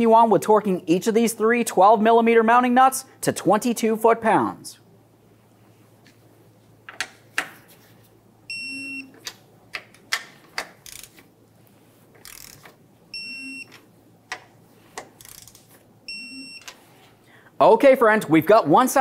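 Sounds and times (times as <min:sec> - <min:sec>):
wrench and socket clicks: 0:09.2 - 0:11.2, 0:12.2 - 0:12.7, 0:15.2 - 0:15.7
torque wrench beeping: 0:12.2 - 0:13.8, 0:15.2 - 0:16.8.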